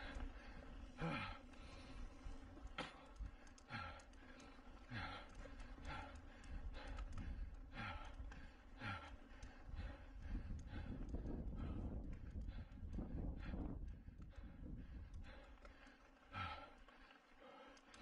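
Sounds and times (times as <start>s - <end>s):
person breathing hard: 0.0s - 18.0s.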